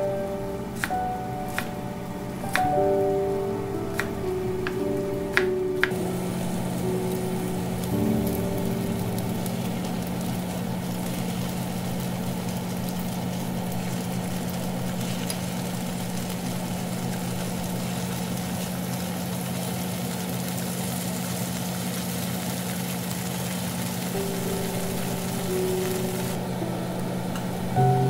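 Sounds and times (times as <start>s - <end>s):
steady low hum: 0.0s - 18.9s, 24.2s - 28.0s
tofu sizzling in oil: 6.0s - 26.3s.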